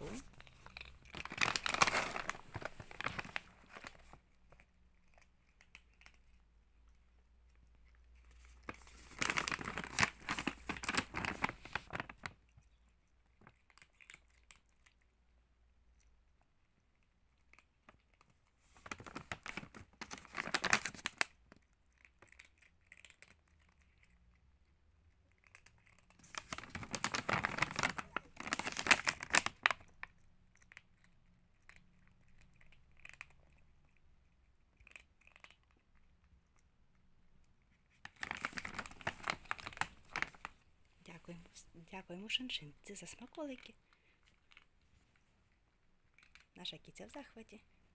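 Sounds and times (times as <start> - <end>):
plastic bag crinkling: 0.0 - 6.3, 7.8 - 12.4, 18.6 - 21.4, 25.5 - 30.7, 37.9 - 41.5.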